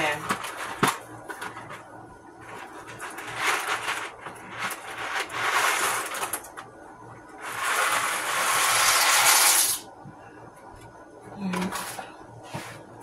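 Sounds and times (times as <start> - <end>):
box rustling and rattling: 0.0 - 1.8, 2.4 - 6.6.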